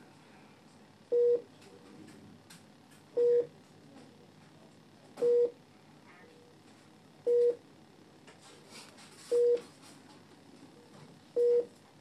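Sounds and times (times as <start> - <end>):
patient monitor beeping: 1.1 - 1.5, 3.1 - 3.6, 5.2 - 5.6, 7.2 - 7.6, 9.3 - 9.7, 11.4 - 11.8.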